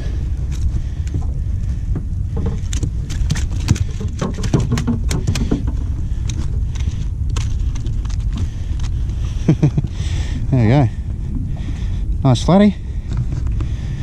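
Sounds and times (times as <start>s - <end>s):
wind rumble on microphone: 0.0s - 14.0s
landing net clicks and rattles: 2.4s - 9.0s.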